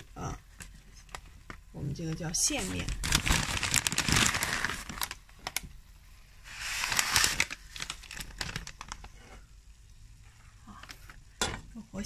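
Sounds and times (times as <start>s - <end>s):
plastic packet crinkling: 0.2s - 5.7s, 6.5s - 9.2s.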